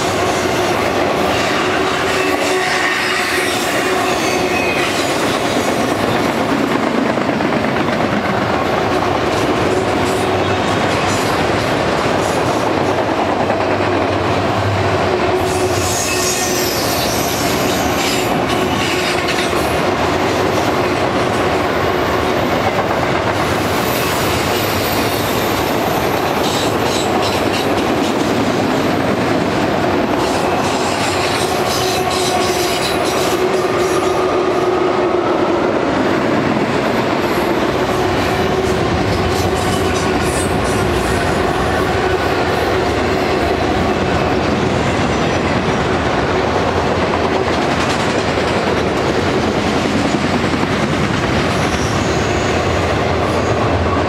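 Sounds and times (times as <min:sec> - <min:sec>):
steel wheels clattering on rails: 0:15.4 - 0:34.3, 0:36.3 - 0:53.9.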